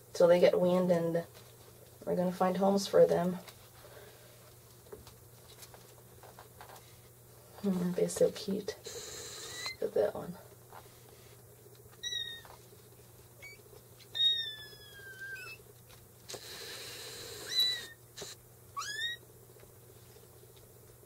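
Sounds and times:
kittens mewing: 13.4s - 15.6s, 18.8s - 19.2s.

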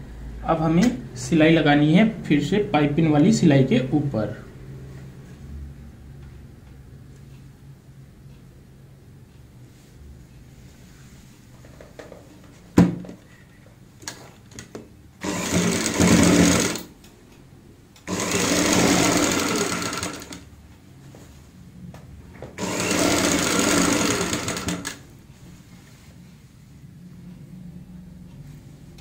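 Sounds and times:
sewing machine stitching: 15.2s - 17.0s, 18.0s - 20.5s, 22.6s - 25.1s.

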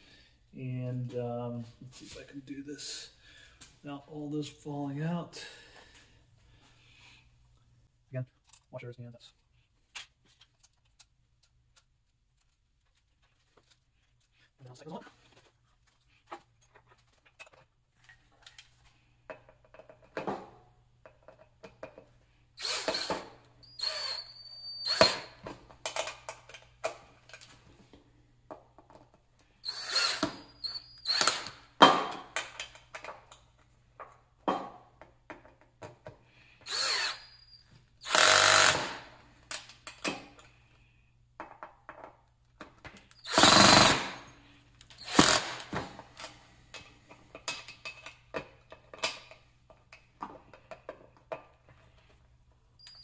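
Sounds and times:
cordless drill driving bolts: 22.6s - 25.4s, 29.6s - 31.7s, 36.6s - 39.1s, 43.1s - 44.3s, 44.9s - 45.8s
fasteners clicking and clattering: 25.0s - 27.6s, 31.0s - 34.2s, 41.4s - 52.1s.

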